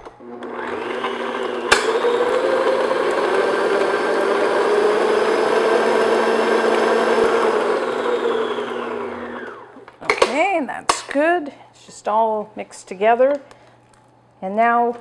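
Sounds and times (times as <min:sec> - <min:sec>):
stand mixer motor running: 0:00.2 - 0:09.7.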